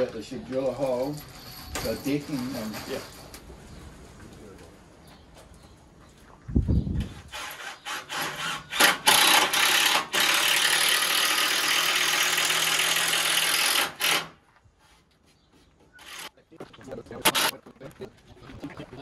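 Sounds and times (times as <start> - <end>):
power tool on timber: 7.3 - 14.4, 16.0 - 16.3.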